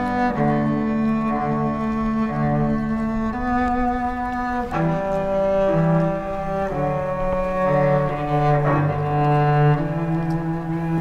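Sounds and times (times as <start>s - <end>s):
cello bowed chords: 0.0s - 11.0s.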